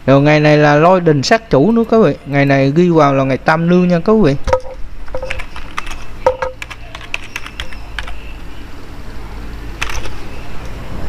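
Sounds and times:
computer keyboard typing: 4.5s - 8.4s, 9.8s - 10.7s.

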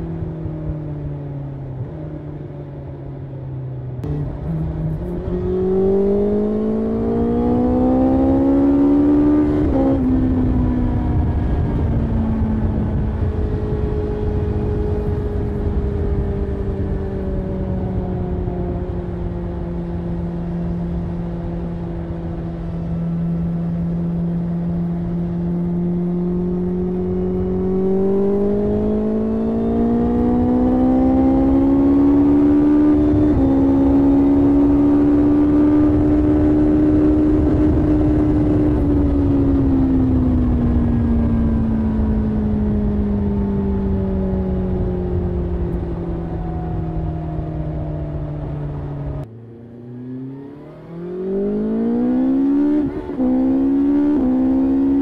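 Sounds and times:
motorcycle engine revving: 4.0s - 55.0s.

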